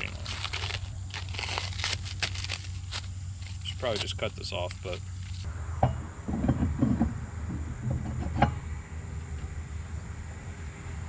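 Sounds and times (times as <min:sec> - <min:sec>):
low steady rumble: 0:00.0 - 0:11.0
metal knocks and clatter: 0:05.8 - 0:08.7.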